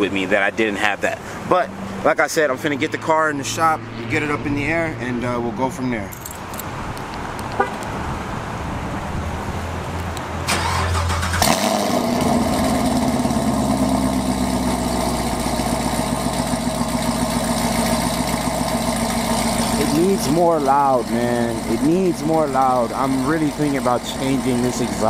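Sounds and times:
car starter cranking: 0:10.5 - 0:13.1
car engine idling: 0:10.5 - 0:25.0.

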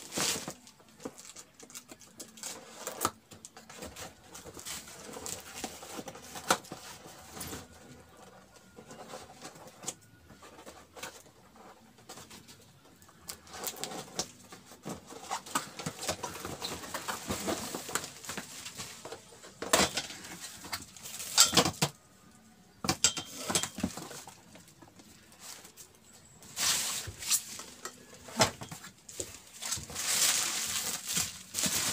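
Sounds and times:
cardboard scraping and crackling: 0:00.0 - 0:01.4, 0:13.4 - 0:21.8, 0:26.4 - 0:31.9
plastic-wrapped metal shifting: 0:00.0 - 0:12.4, 0:13.3 - 0:22.0, 0:22.8 - 0:31.9.

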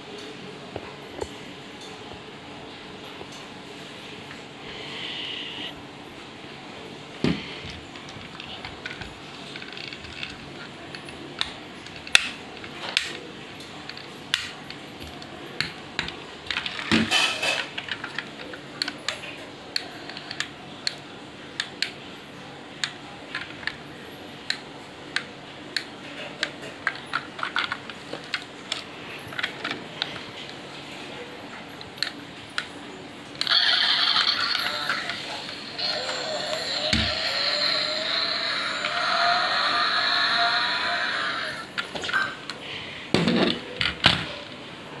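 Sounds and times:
plastic toy parts clicking: 0:08.0 - 0:13.2, 0:24.5 - 0:30.2.

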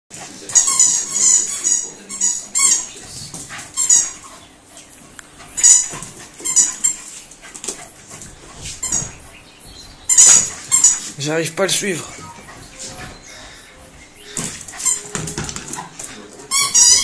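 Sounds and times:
dog squeaking excitedly: 0:00.6 - 0:03.0, 0:03.8 - 0:04.3, 0:05.6 - 0:07.1, 0:08.8 - 0:11.2, 0:14.2 - 0:17.0.

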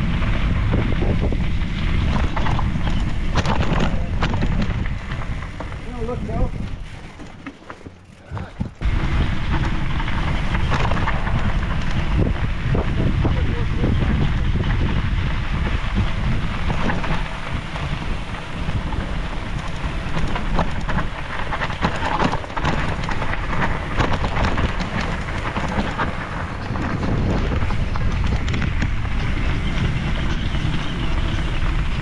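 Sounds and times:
wind buffeting microphone: 0:00.0 - 0:07.3, 0:08.0 - 0:32.0.

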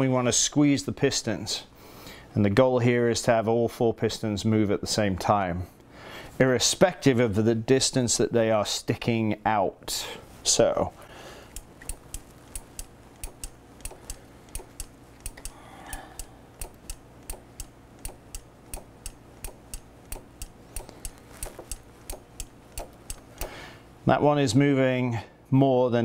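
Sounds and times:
brake lever light clicks: 0:11.5 - 0:23.5.

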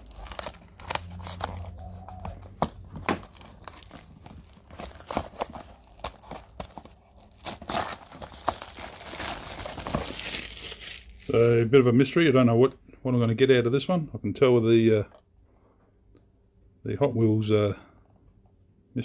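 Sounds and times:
knife slitting plastic wrap: 0:00.0 - 0:01.8, 0:03.2 - 0:11.6
plastic wrap crinkling and tearing: 0:00.0 - 0:11.7.

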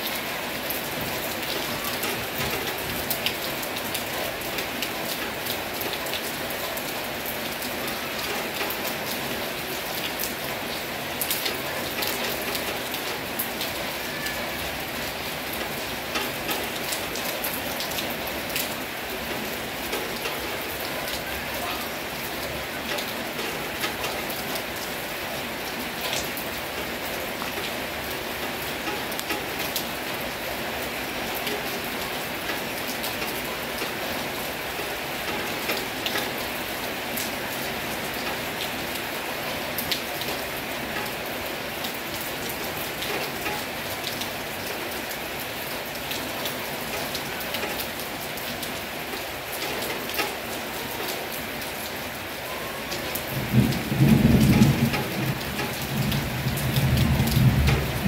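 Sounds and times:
heavy rain falling: 0:00.0 - 0:58.0
raindrops ticking close by: 0:00.0 - 0:58.0
low rumble of thunder: 0:53.2 - 0:58.0.

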